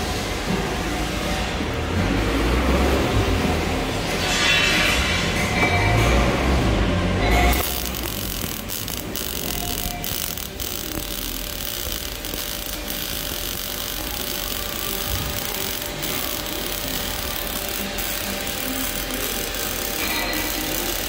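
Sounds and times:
welding arc crackling: 7.5 - 21.0.

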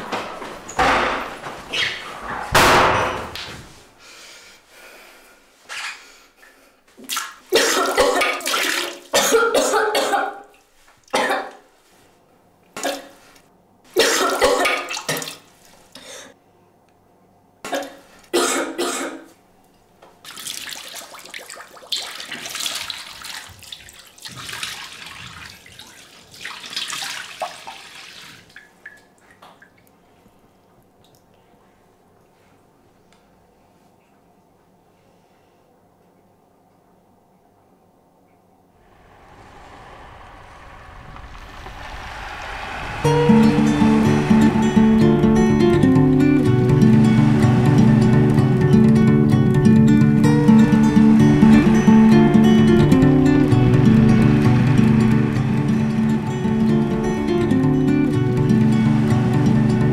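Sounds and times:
water splashing: 7.1 - 9.2, 20.2 - 29.9
person coughing and sputtering: 7.6 - 8.4, 9.2 - 10.4, 17.7 - 19.3.

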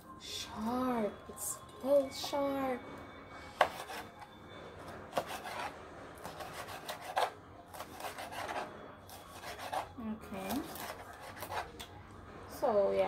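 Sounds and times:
knife cutting on cutting board: 5.1 - 8.6, 9.3 - 9.9, 10.6 - 11.8.

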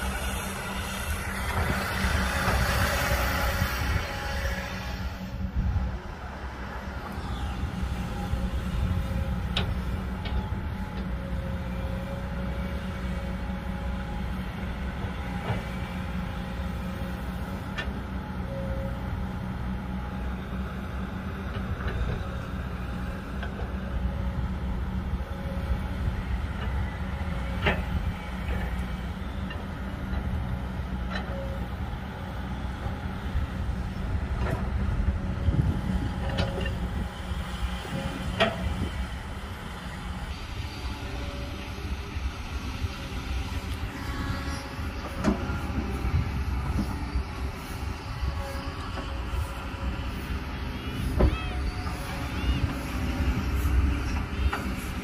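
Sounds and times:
excavator diesel engine humming: 0.0 - 55.0
hydraulic whine: 0.0 - 55.0.

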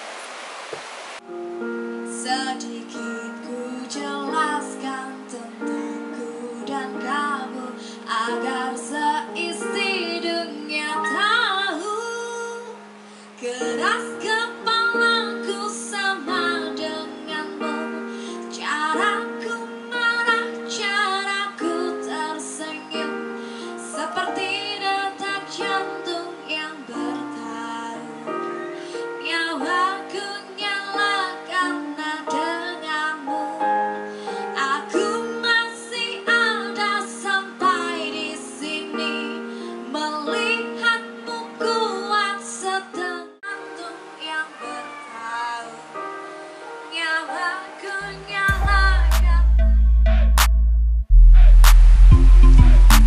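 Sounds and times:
girl singing karaoke: 1.6 - 49.8
backing track keyboard notes: 47.4 - 53.0.

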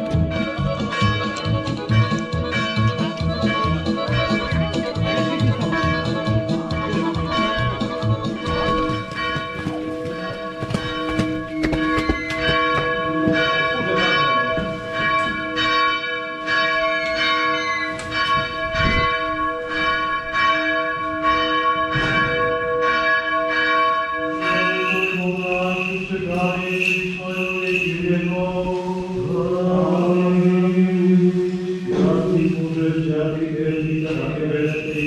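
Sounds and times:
church bells ringing: 0.0 - 35.0
sustained chant: 24.5 - 35.0.

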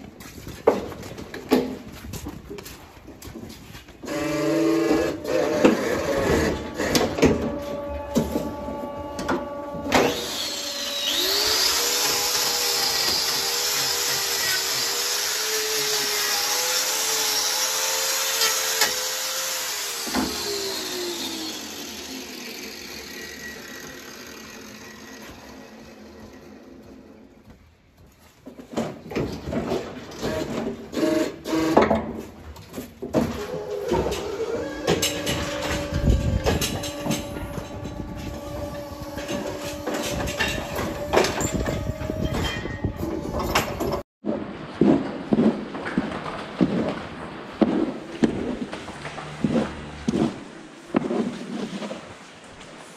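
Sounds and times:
power tool winding down: 4.0 - 27.0, 33.7 - 42.2
angle grinder whining: 4.0 - 27.4, 33.4 - 44.0
metal clanks and knocks: 5.2 - 10.3, 31.8 - 47.0.

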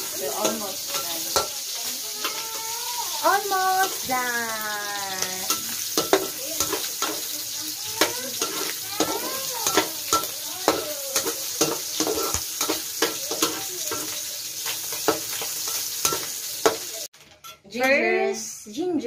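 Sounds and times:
metal utensil scraping a wok: 0.0 - 4.2, 5.1 - 17.7
meat sizzling in hot oil: 0.0 - 17.1
utensil squeaking on pan: 0.8 - 4.2, 5.2 - 17.0.

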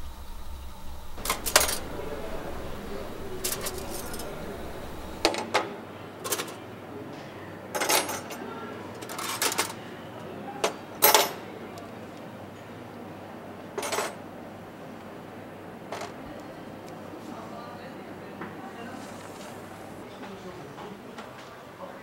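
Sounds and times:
cutlery clinking onto metal tray: 1.2 - 6.6, 7.8 - 8.4, 9.0 - 9.8, 10.6 - 11.4, 13.8 - 14.2.

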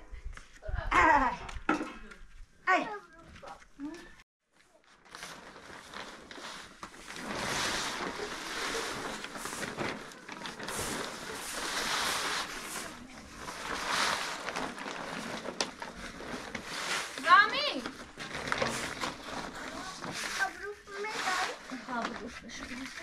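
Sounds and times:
plastic sheet rustling and crackling: 4.6 - 23.0
broom sweeping: 6.3 - 15.1, 16.4 - 17.8, 18.7 - 23.0.

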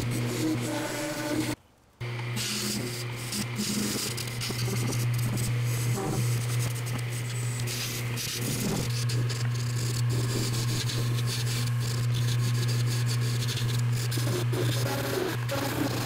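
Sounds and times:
turning tool scraping hiss: 0.0 - 1.6, 2.4 - 16.0
lathe motor humming: 0.0 - 16.0.

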